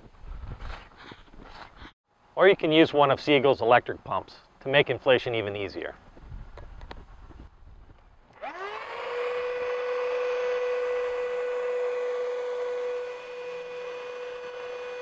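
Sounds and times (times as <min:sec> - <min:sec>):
electric air pump whining: 0:08.3 - 0:15.0.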